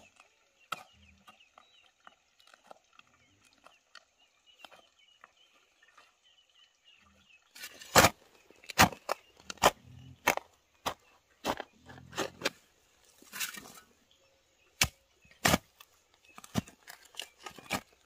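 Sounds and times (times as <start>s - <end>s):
faint birdsong: 0.0s - 18.0s
chopping wood: 7.7s - 12.5s, 14.8s - 15.7s.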